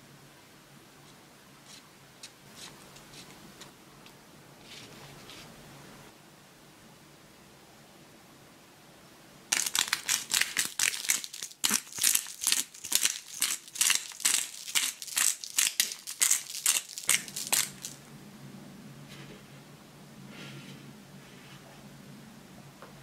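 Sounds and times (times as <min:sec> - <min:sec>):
salt grinder crunching: 0:09.5 - 0:18.0.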